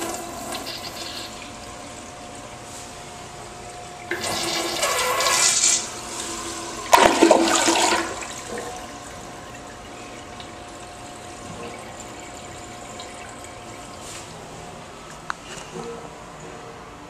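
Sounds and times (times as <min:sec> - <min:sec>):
toilet flushing: 0:00.0 - 0:15.1.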